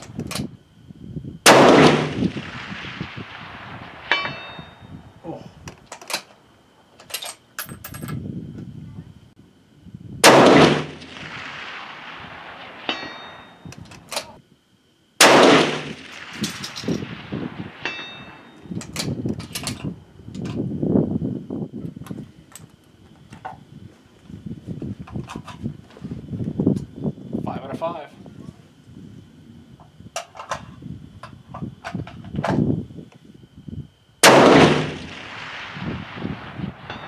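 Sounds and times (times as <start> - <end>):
rifle shots echoing: 1.5 - 4.8, 10.2 - 13.6, 15.2 - 18.6, 34.2 - 37.0
faint ring of steel target: 4.0 - 5.0, 12.8 - 13.7, 17.8 - 18.8.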